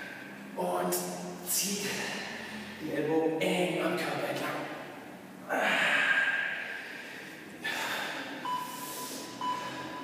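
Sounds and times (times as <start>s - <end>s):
man breathing out hard: 5.5s - 10.0s
interval timer beeping: 8.4s - 10.0s.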